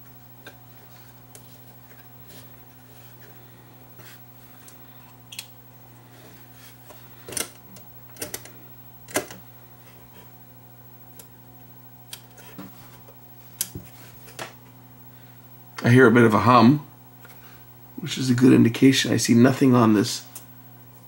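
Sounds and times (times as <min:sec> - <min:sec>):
low mains hum from radio: 0:00.0 - 0:21.0.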